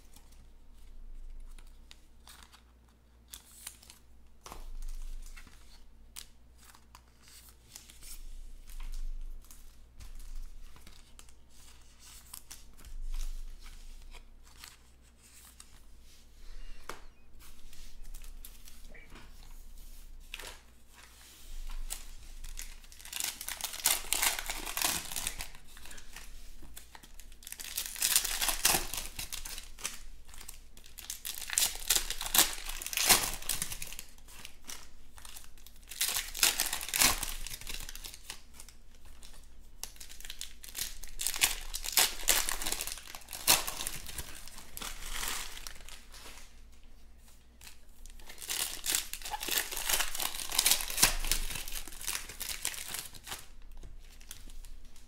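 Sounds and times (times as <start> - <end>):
foil packs torn and crinkled: 21.7 - 46.5, 47.6 - 55.0.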